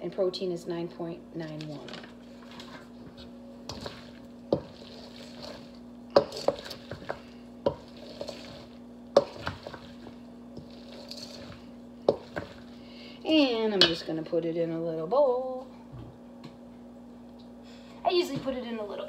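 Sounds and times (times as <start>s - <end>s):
spatula swishing wet food: 2.3s - 12.8s.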